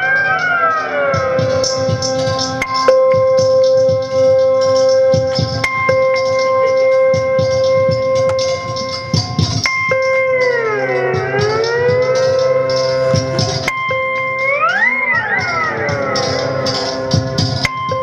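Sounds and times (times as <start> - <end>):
soft steady beat: 0.0 - 18.0.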